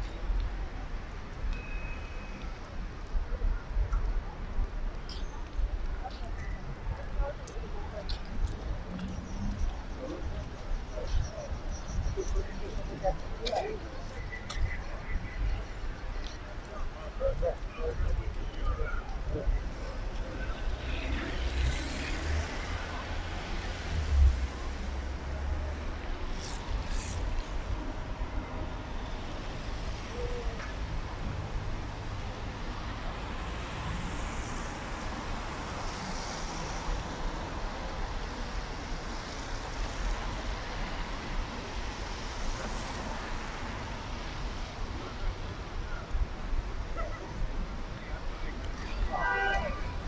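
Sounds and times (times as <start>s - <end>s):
tyres hissing on wet road: 33.1s - 37.7s.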